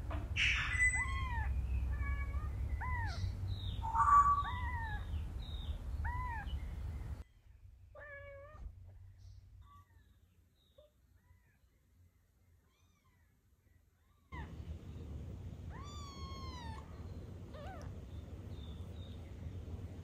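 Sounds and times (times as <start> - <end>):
low background hum: 0.0 - 20.0
kitten mewing: 15.7 - 18.0.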